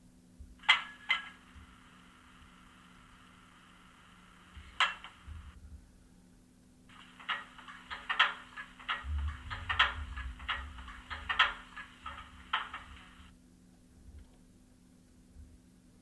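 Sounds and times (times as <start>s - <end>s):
irregular clicks and clanks: 0.6s - 1.8s, 4.5s - 5.6s, 6.9s - 13.3s.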